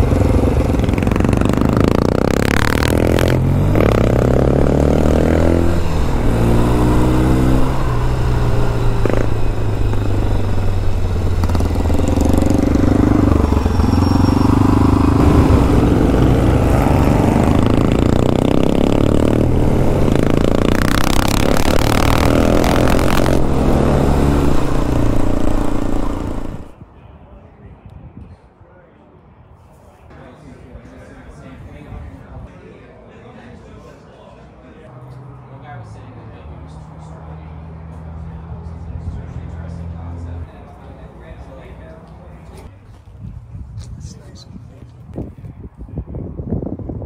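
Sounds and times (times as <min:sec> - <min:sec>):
motorcycle engine revving: 0:00.0 - 0:26.8.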